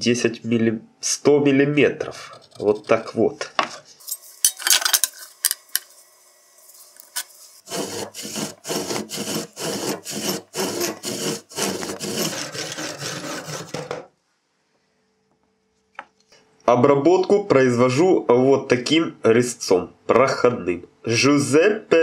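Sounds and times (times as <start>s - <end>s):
hand saw cutting wood: 7.6s - 14.1s.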